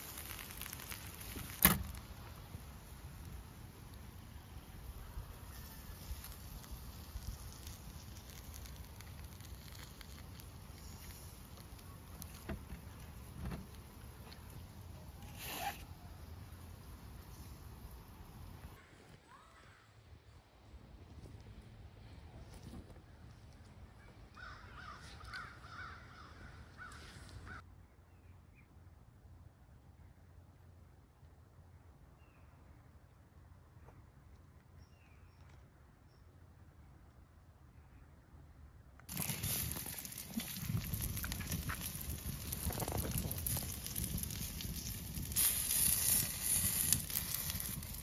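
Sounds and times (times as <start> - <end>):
faint crackles and ticks: 0.0 - 18.8, 39.0 - 48.0
faint outdoor background: 0.0 - 48.0
low outdoor rumble: 36.4 - 48.0.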